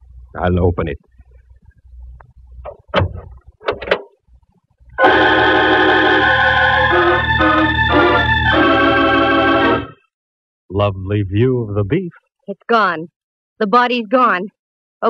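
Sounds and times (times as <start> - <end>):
dramatic organ music sting: 5.0 - 10.0.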